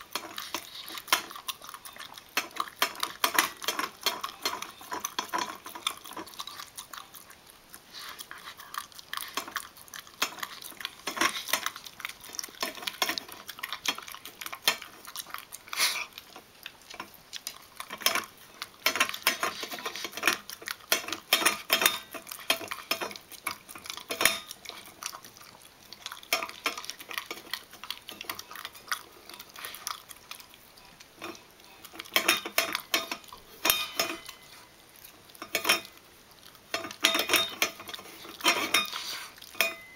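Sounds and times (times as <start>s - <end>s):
metal dog bowl clinking: 32.1s - 34.5s, 36.8s - 39.0s, 39.6s - 39.9s.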